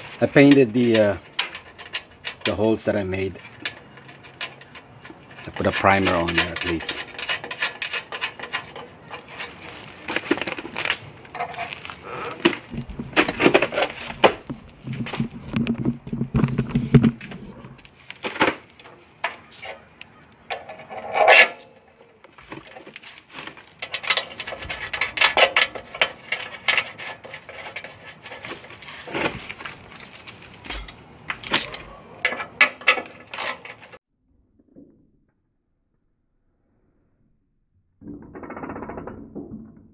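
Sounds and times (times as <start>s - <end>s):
metal parts clinking and scraping: 0.0s - 14.2s, 18.1s - 34.0s.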